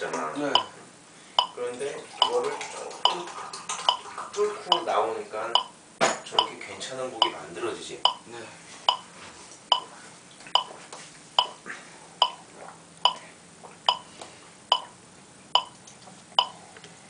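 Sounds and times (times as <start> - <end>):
electronic metronome clicking: 0.5 - 0.7, 4.7 - 4.9, 5.5 - 5.7, 6.4 - 6.6, 12.2 - 12.4, 13.0 - 13.2, 13.9 - 14.1, 14.7 - 14.9, 15.6 - 16.6.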